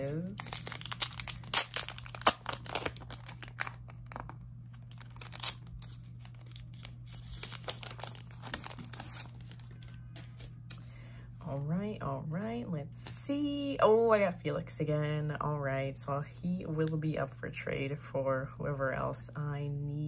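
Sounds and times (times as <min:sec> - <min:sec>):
packaging crinkling by hand: 0:00.0 - 0:10.6.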